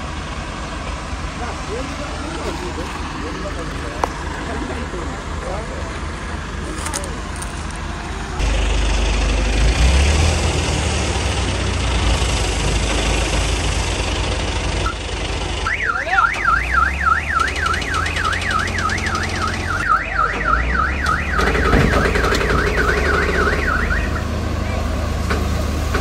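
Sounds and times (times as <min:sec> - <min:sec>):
heavy machinery engines running: 0:00.0 - 0:26.0
warbling electronic warning alarm: 0:15.6 - 0:24.3.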